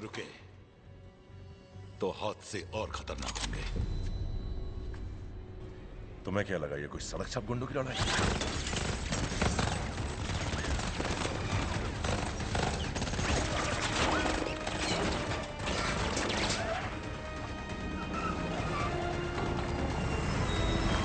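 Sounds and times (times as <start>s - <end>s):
action film music: 0.0s - 21.0s
rapid automatic gunfire: 8.0s - 20.3s.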